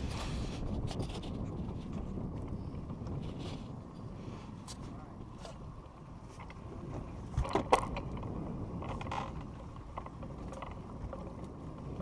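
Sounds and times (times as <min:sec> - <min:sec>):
fishing reel clicking and creaking: 0:07.4 - 0:12.0.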